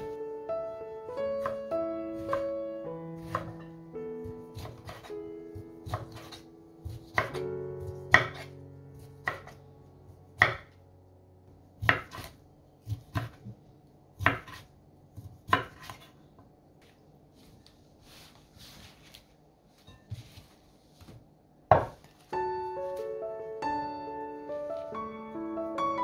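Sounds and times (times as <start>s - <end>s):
knife chopping on wooden board: 3.2s - 9.6s, 10.4s - 10.7s, 11.8s - 13.6s, 14.2s - 16.1s, 21.0s - 22.1s.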